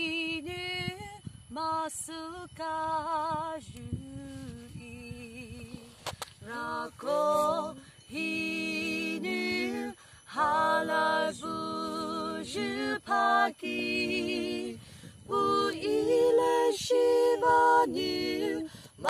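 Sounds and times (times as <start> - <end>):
woman singing: 0.0 - 18.7.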